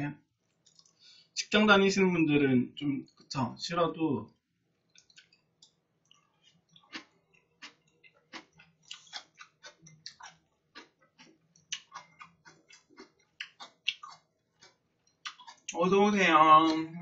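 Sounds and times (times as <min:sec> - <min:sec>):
wet chewing mouth clicks: 0:04.9 - 0:15.8.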